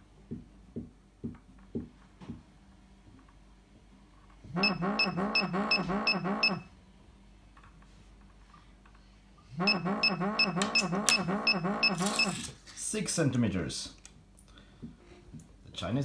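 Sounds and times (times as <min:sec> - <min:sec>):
pinpointer pulsing warble alarm: 0:04.5 - 0:06.7, 0:09.5 - 0:12.4.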